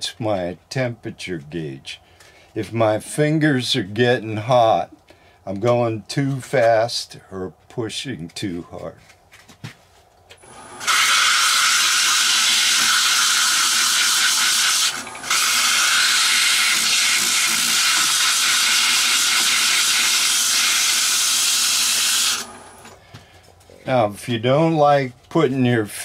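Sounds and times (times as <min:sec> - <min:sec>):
sandpaper sanding wood on lathe: 0:10.8 - 0:22.6.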